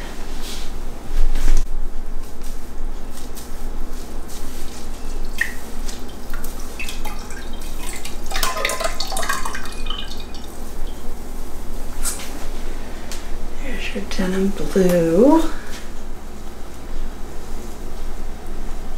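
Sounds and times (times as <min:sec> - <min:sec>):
liquid dripping into a jar: 0:05.3 - 0:10.6.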